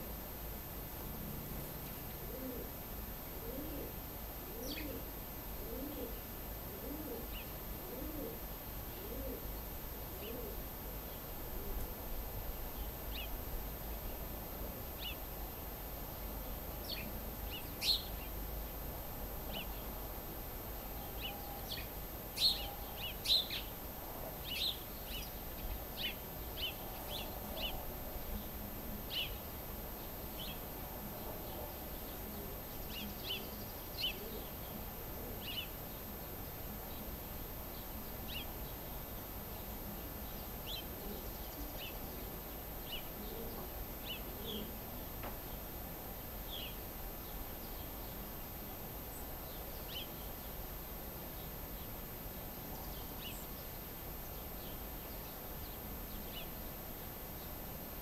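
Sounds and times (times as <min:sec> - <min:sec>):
dove cooing: 0:02.1 - 0:12.0, 0:30.4 - 0:35.7, 0:40.7 - 0:44.8
songbird chirps: 0:16.2 - 0:18.6, 0:20.7 - 0:58.0.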